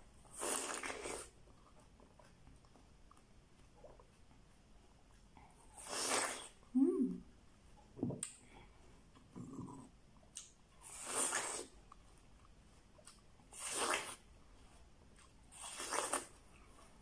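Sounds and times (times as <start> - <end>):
juicy watermelon bites and slurps: 0.2 - 1.4, 10.8 - 12.0, 13.1 - 14.3, 15.2 - 16.4.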